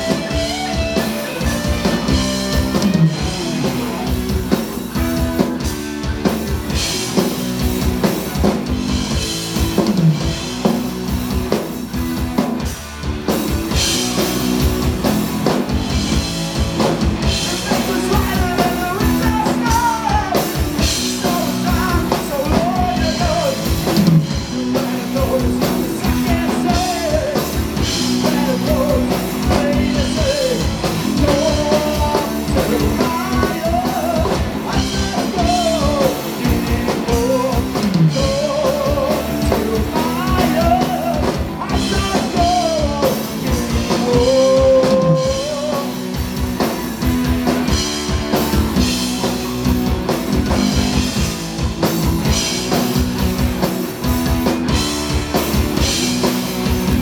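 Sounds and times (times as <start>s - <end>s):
rock band playing live: 0.0s - 57.0s
lead vocalist singing: 17.3s - 46.1s.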